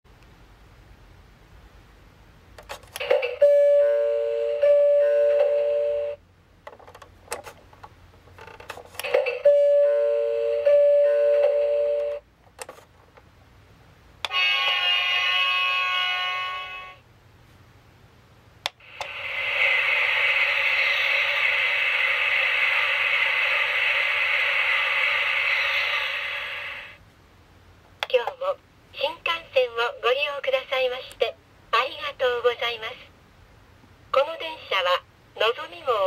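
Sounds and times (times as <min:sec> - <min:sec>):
steady hissing: 0:18.8 - 0:27.0.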